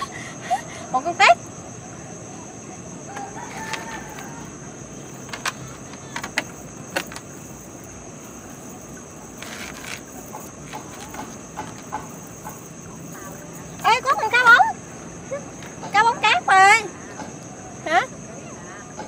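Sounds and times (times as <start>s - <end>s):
crickets and insects droning: 0.0s - 19.0s
sharp clicks and knocks: 5.2s - 13.9s.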